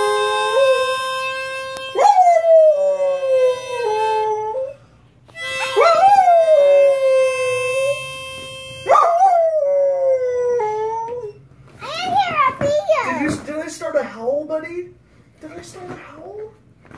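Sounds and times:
harmonica chords: 0:00.0 - 0:09.6
dog howling: 0:02.0 - 0:04.8, 0:05.7 - 0:08.0, 0:08.9 - 0:11.4.

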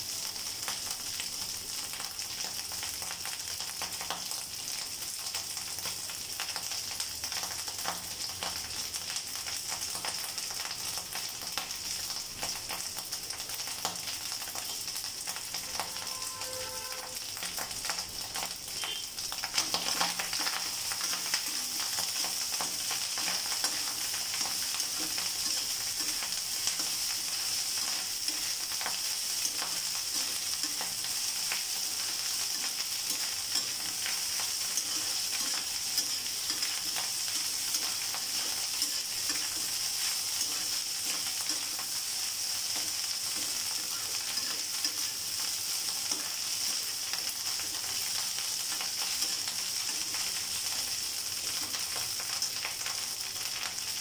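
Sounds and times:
rice sizzling in a pan: 0:00.0 - 0:54.0
spatula scraping metal pan: 0:15.6 - 0:17.2.

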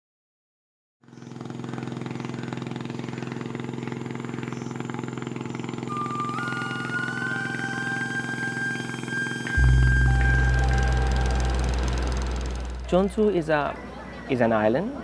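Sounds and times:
motorboat engine running: 0:01.0 - 0:13.8
held musical tone: 0:05.8 - 0:13.6.

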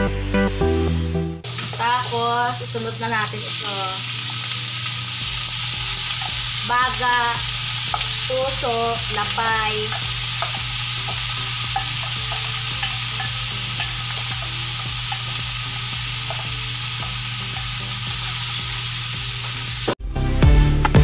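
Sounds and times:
music: 0:00.0 - 0:01.5, 0:11.2 - 0:21.0
meat sizzling in hot oil: 0:01.4 - 0:20.0
oil popping: 0:03.2 - 0:20.0.

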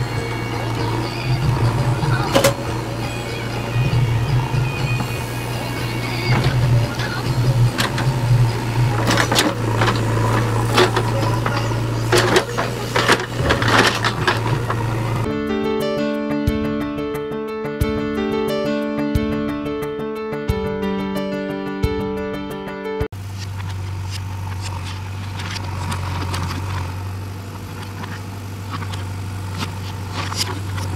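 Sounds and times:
diesel engine running under load: 0:00.0 - 0:15.6, 0:23.2 - 0:30.9.

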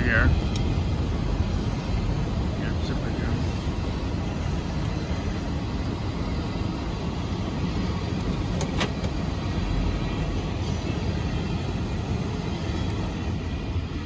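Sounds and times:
freight train rumbling past: 0:00.0 - 0:14.0.

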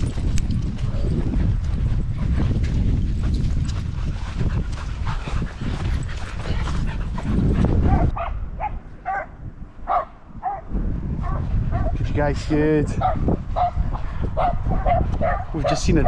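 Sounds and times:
wind noise on microphone: 0:00.0 - 0:16.0
distant dog barking: 0:07.8 - 0:12.0, 0:13.0 - 0:15.9.

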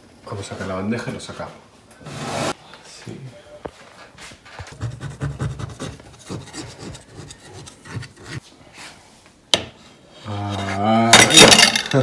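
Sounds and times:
cloth rubbing and scraping: 0:02.0 - 0:02.6.

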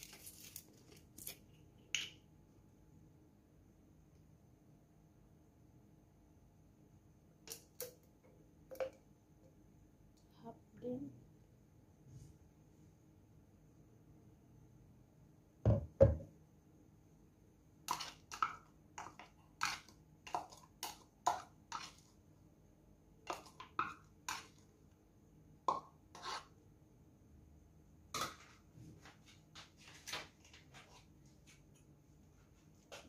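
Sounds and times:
spoon scraping plastic cup: 0:17.9 - 0:22.1, 0:25.7 - 0:26.6.

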